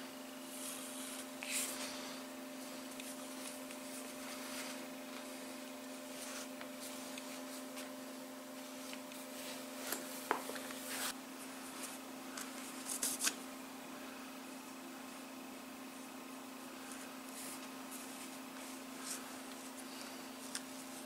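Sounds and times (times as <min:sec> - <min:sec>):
steady hum: 0:00.0 - 0:21.0
cord rubbing and rustling: 0:00.5 - 0:08.0, 0:08.6 - 0:13.4, 0:16.8 - 0:21.0.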